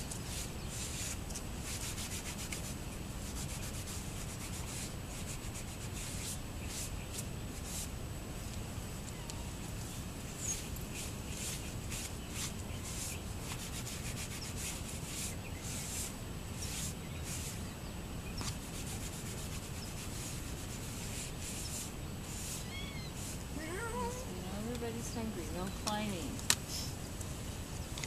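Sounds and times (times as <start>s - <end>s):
scraping and rustling strokes: 0.0s - 8.5s, 9.1s - 17.7s, 18.3s - 28.0s
cat chirping: 22.4s - 24.4s.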